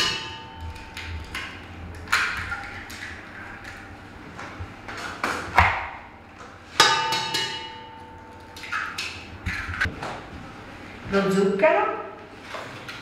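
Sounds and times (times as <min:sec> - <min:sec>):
metal bowl ringing: 0:00.0 - 0:01.0, 0:06.8 - 0:08.9.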